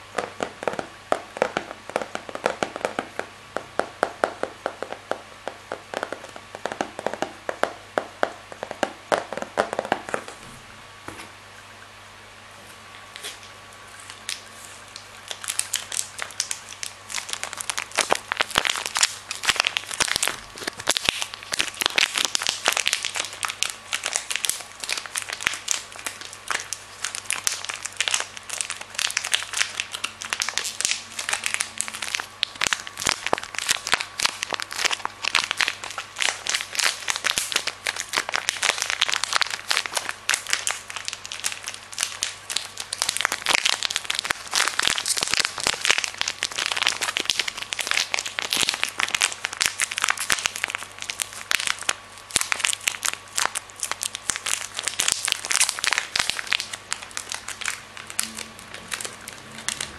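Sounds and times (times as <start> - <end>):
plastic wrapper crinkling: 13.0 - 59.9.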